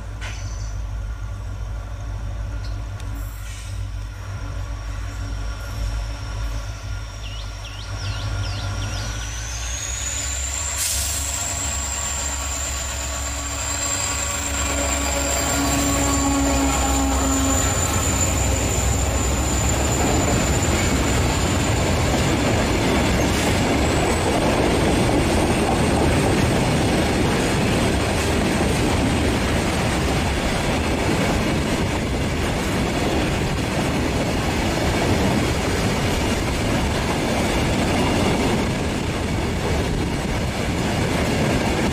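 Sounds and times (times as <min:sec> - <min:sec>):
diesel locomotive rumble: 0:00.0 - 0:41.9
high wheel squeal: 0:03.3 - 0:24.4.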